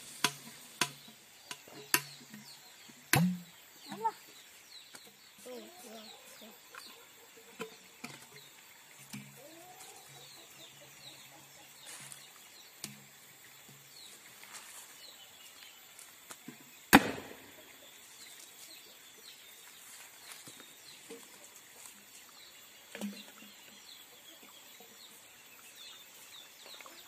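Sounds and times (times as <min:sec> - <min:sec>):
cannon boom: 0:17.0 - 0:17.6.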